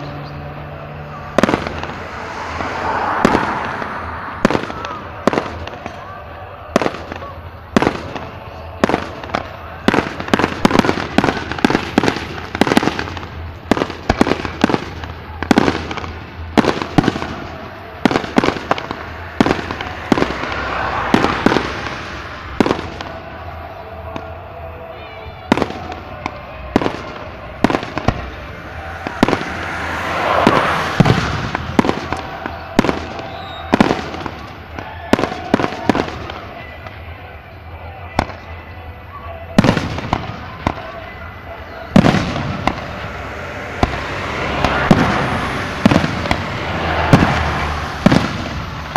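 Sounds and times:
dense fireworks crackling: 0:00.0 - 0:48.9
fireworks bursting with sharp bangs: 0:00.9 - 0:48.9.

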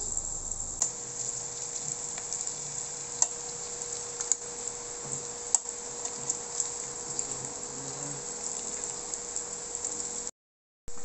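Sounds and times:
fish sizzling in a pan: 0:00.0 - 0:10.3
metal tongs clicking on pan: 0:03.2 - 0:03.4.

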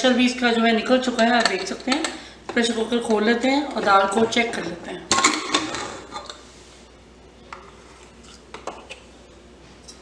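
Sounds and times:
metal lid scraping and clattering: 0:03.8 - 0:06.4.

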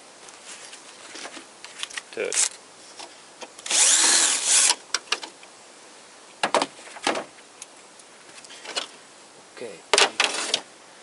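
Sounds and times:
cordless screwdriver running: 0:03.6 - 0:04.8.

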